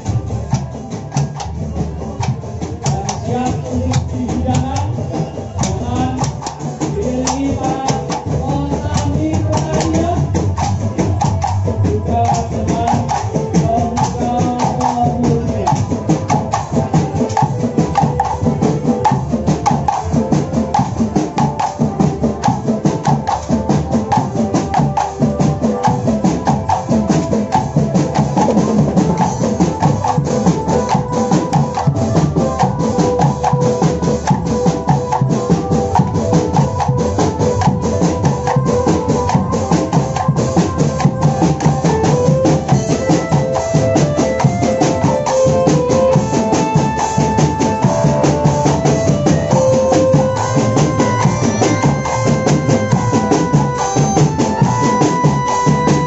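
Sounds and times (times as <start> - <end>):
parade music with drums: 0.0 - 56.0.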